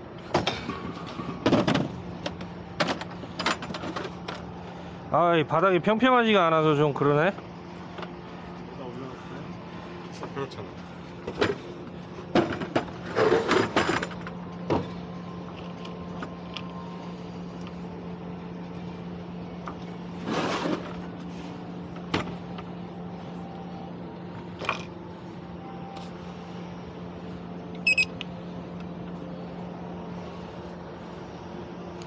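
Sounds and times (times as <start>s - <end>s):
low machine hum: 0.0s - 32.0s
tools and metal parts clattering: 0.3s - 4.5s, 12.3s - 16.7s.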